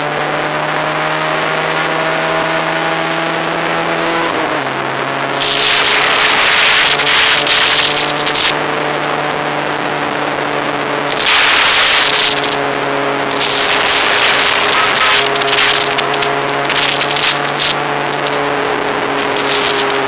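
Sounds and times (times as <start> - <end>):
motorcycle engine cruising: 0.0 - 20.0
wind rushing over microphone: 4.4 - 8.9, 9.7 - 20.0.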